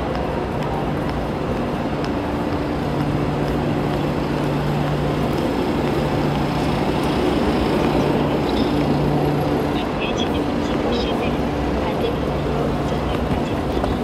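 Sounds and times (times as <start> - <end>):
footsteps on paving: 0.0 - 14.0
train rumble with low hum: 0.0 - 14.0
suitcase wheels rolling: 1.4 - 10.3.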